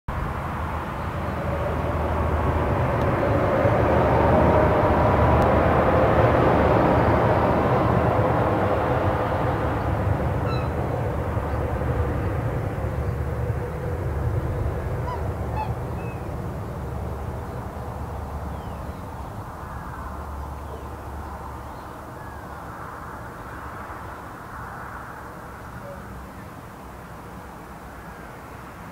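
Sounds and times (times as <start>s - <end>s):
highway traffic rushing: 0.1s - 28.9s
waterbirds honking: 10.3s - 11.6s, 14.5s - 17.5s.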